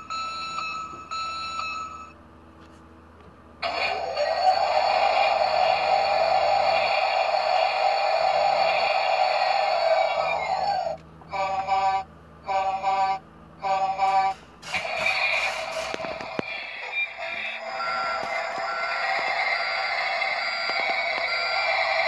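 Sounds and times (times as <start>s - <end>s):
recorded engine starting up: 3.6s - 11.8s, 13.6s - 22.0s
toy electronic beeps: 16.5s - 22.0s.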